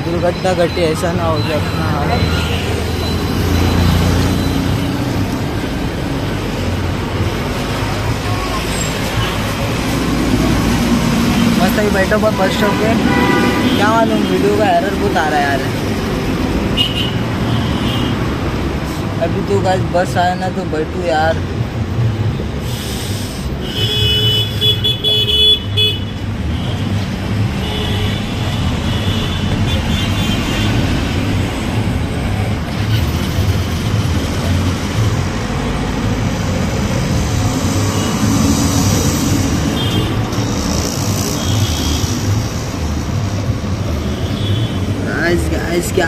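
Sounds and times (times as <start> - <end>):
passing cars and trucks: 0.0 - 46.0
vehicle horns honking: 12.4 - 14.4, 16.8 - 18.2, 23.6 - 26.9.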